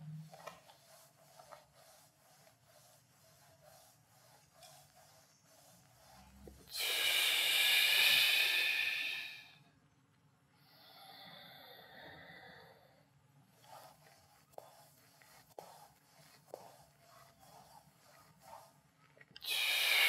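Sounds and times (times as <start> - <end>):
person breathing hard: 6.7 - 9.6, 19.4 - 20.0.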